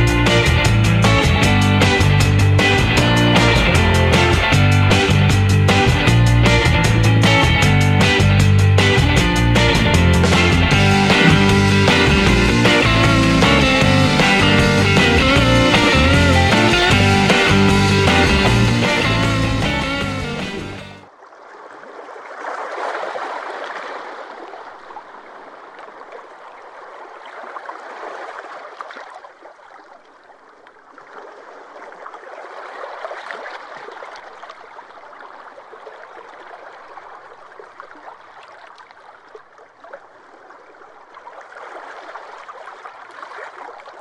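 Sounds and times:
water running and splashing: 21.3s - 44.0s.

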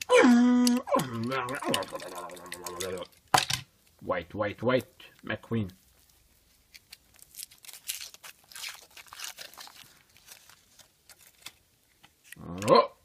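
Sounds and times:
foil wrapper crinkling and tearing: 0.0s - 4.0s, 4.7s - 12.5s.

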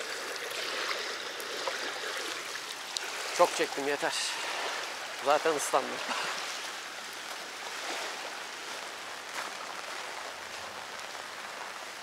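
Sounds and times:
faint ticks of raindrops: 1.3s - 3.9s, 6.6s - 7.5s, 8.7s - 12.0s
steady rain falling: 2.2s - 12.0s.

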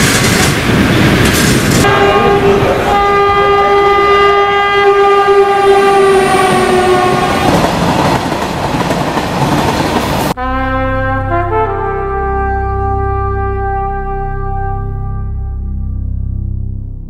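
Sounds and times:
train wheels rumbling on rails: 0.0s - 10.4s
train horn: 1.8s - 7.6s, 10.4s - 16.1s.

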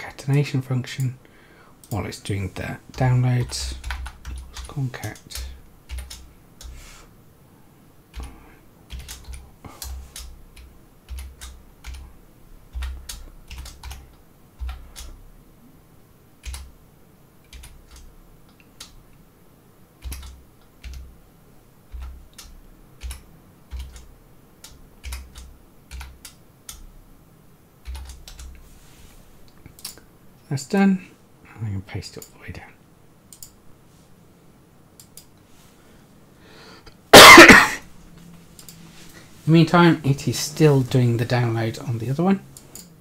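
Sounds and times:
computer keyboard typing: 2.9s - 6.8s, 8.1s - 12.0s, 12.7s - 15.2s, 16.4s - 16.7s, 17.4s - 19.0s, 20.0s - 21.1s, 21.9s - 26.9s, 27.8s - 28.6s.

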